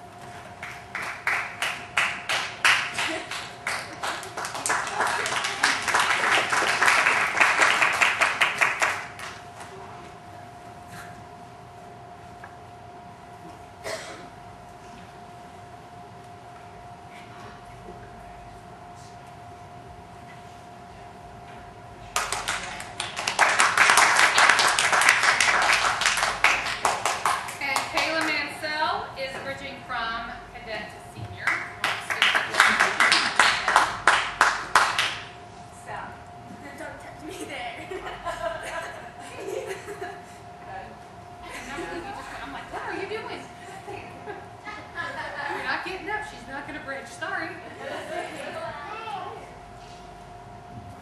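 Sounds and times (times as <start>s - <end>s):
faint steady hum: 0.0s - 51.0s
audience applauding: 0.6s - 9.4s, 22.1s - 28.4s, 31.5s - 35.3s.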